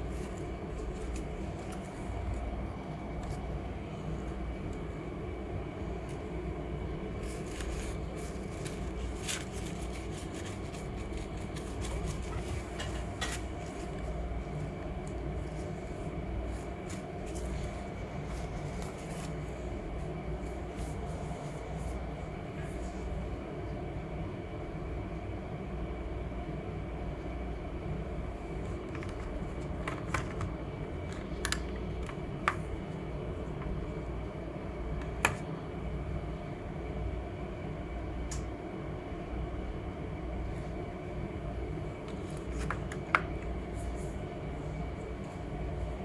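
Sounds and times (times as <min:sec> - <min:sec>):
low room rumble: 0:00.0 - 0:46.0.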